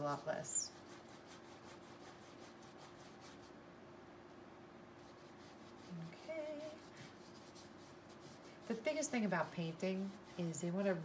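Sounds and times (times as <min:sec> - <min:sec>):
paintbrush rubbing on canvas: 0:00.0 - 0:03.6, 0:05.0 - 0:11.0
steady low hum: 0:00.0 - 0:11.0
woman humming: 0:05.9 - 0:06.9.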